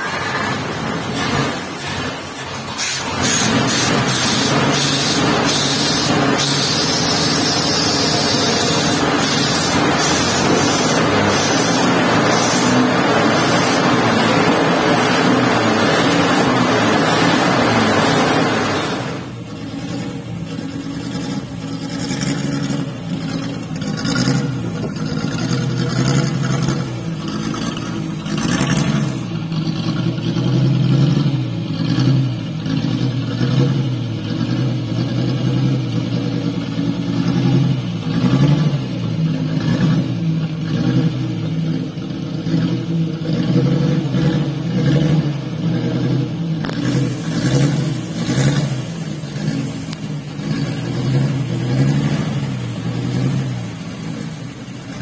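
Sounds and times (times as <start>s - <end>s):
loud rushing noise: 0.0s - 20.4s
truck engine running: 0.0s - 55.0s.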